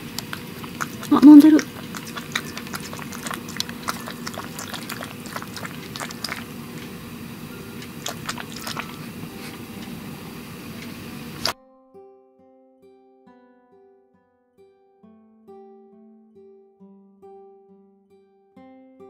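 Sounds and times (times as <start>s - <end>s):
cat licking wet clicks: 0.0s - 11.6s.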